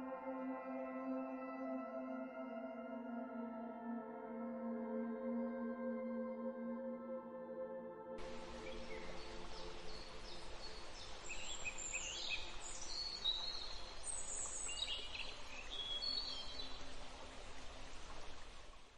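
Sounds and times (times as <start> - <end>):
faint held music tones: 8.2 - 18.9
small birds chirping: 8.2 - 18.9.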